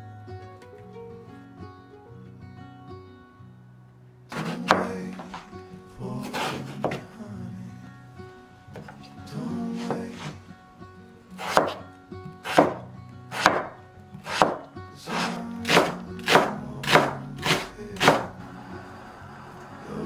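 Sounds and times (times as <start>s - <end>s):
cleaver chopping on wooden board: 11.4s - 11.8s, 12.5s - 12.8s, 13.4s - 14.6s, 15.2s - 18.3s.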